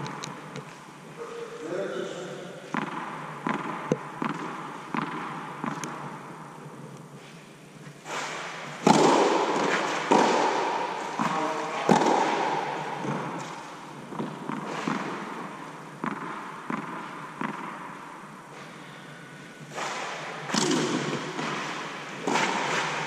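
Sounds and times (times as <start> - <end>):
tennis ball hits echoing: 2.7 - 6.2, 8.1 - 18.0, 19.7 - 23.0
ball bouncing on clay court: 2.7 - 6.3, 8.8 - 18.1, 19.7 - 23.0.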